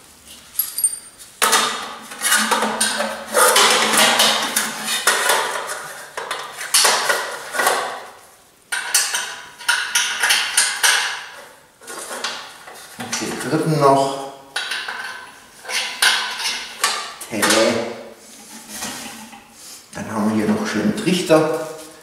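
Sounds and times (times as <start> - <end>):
ringing metal clink: 0.6 - 1.2
metal scraping and clanking: 14.6 - 19.6.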